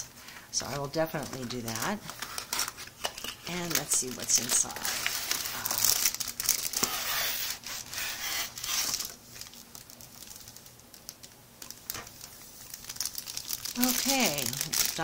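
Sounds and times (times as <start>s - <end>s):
packaging crinkling: 0.6s - 15.0s.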